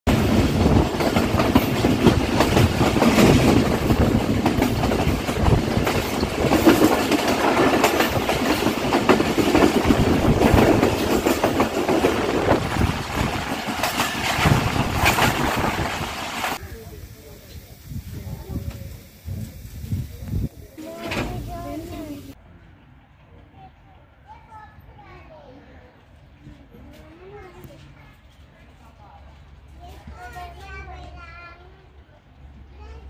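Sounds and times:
train wheels rumbling on rail: 0.1 - 22.4.

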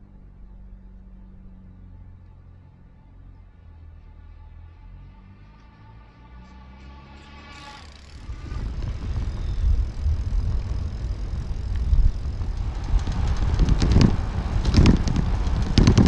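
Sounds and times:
steady hum with overtones: 0.0 - 5.0, 5.8 - 16.0
wind buffeting microphone: 8.2 - 16.0.

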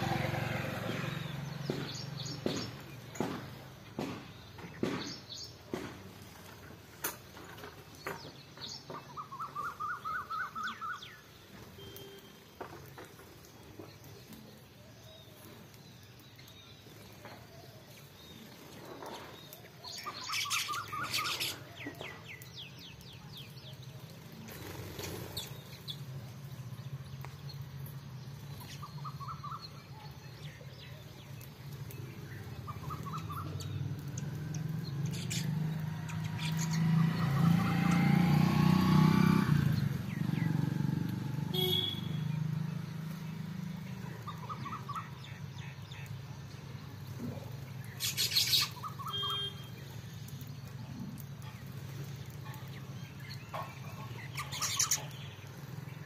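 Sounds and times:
sparrows chirping: 0.0 - 56.0.

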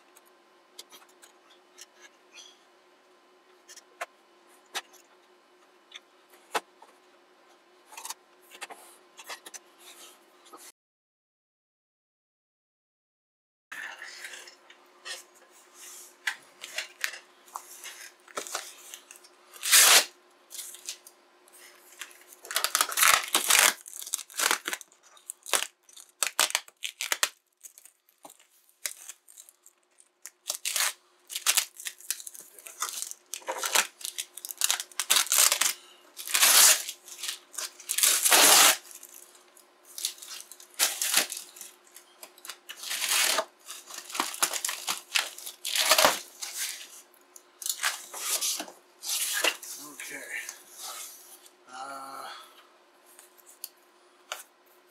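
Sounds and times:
faint steady hum: 0.0 - 10.7, 13.8 - 54.9
tape and cardboard rustling: 15.8 - 50.0
packing tape ripping: 19.6 - 21.0, 22.0 - 39.2, 39.9 - 41.8, 42.4 - 47.0, 47.6 - 49.8.

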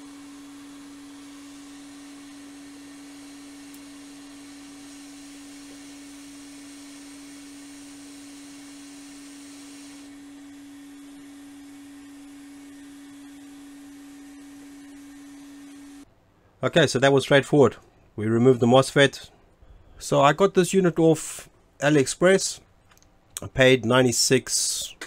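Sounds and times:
hot air station hum: 0.0 - 16.1.

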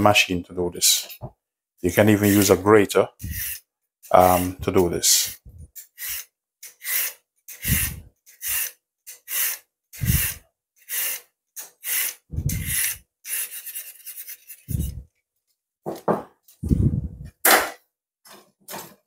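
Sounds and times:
peeler scraping carrot: 2.0 - 15.0.

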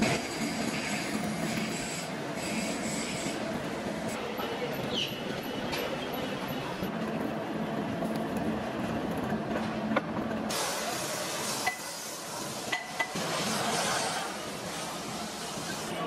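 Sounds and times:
workshop machine noise: 0.0 - 16.0
loud hiss: 10.5 - 16.0.

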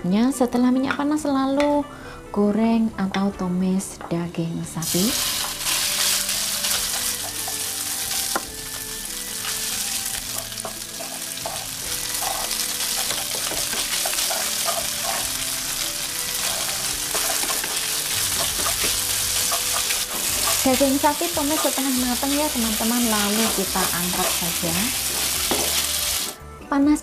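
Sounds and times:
beef sizzling in hot oil: 4.8 - 26.4
wooden spatula scraping pan: 10.4 - 15.4, 16.4 - 20.8.

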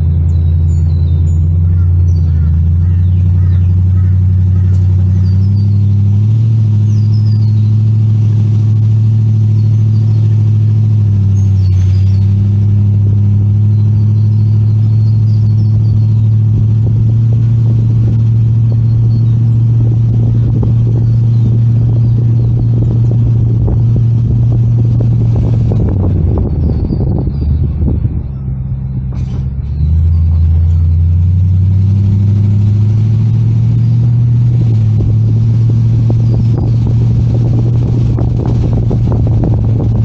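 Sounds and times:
car engine and road noise: 0.0 - 40.0
bumping and rattling: 15.7 - 33.4, 34.0 - 40.0.

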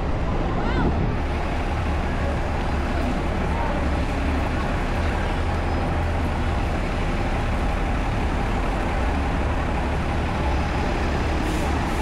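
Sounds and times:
buses idling: 0.0 - 12.0
street traffic noise: 0.0 - 12.0.

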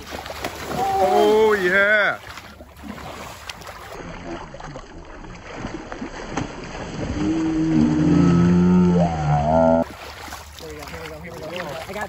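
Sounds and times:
fish splashing at water surface: 0.0 - 12.0
low drawn-out tone: 7.0 - 9.8.

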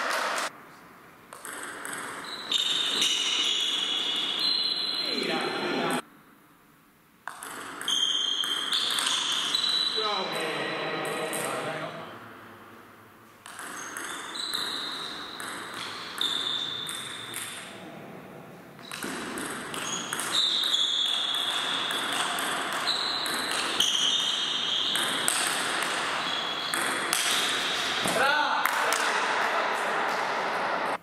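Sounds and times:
table tennis ball hits: 1.3 - 4.1, 7.2 - 9.8, 13.4 - 17.7, 18.8 - 28.2.

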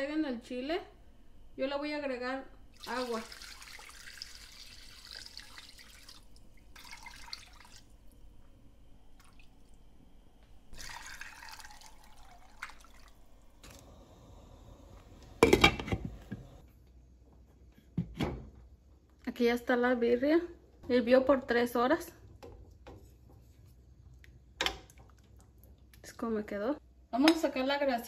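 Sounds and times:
water pouring into a pot: 2.7 - 8.2, 9.2 - 9.8, 10.7 - 13.9.

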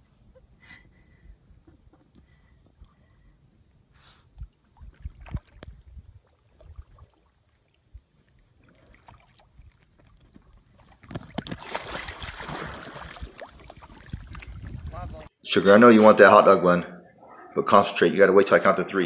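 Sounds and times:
water churning: 4.6 - 15.1
dog splashing into water: 8.7 - 14.8.

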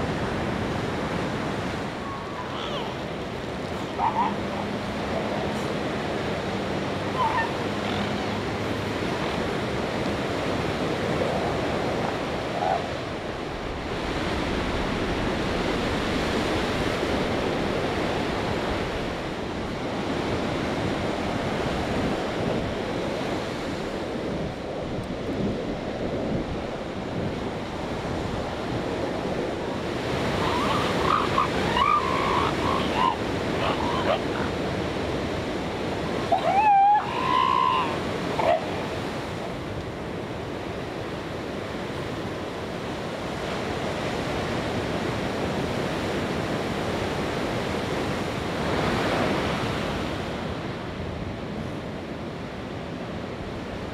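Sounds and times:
surf washing on beach: 0.0 - 53.9
elephant seals calling: 2.0 - 5.8, 7.1 - 8.4, 30.1 - 34.9, 36.0 - 39.1.

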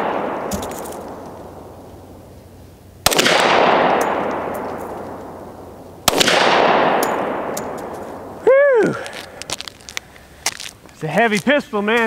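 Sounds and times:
pistol shots with echo: 0.0 - 1.8, 3.0 - 8.4.

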